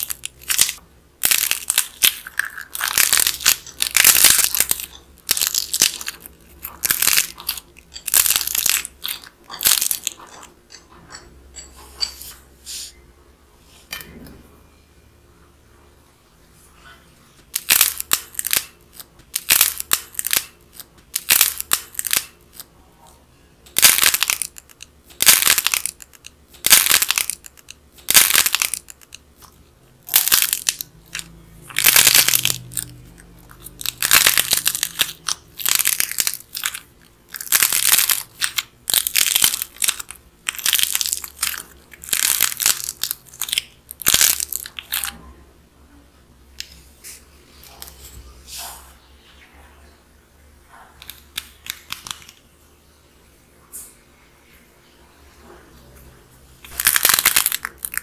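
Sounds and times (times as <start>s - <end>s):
dried clay crust cracking: 0.0s - 10.5s, 17.4s - 22.7s, 23.7s - 45.2s, 51.0s - 52.5s, 56.6s - 58.0s.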